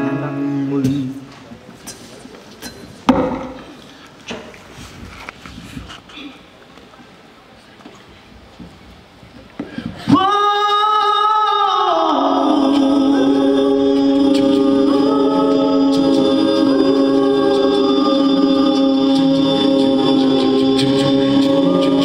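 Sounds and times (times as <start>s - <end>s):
a cappella group singing: 10.1s - 22.0s.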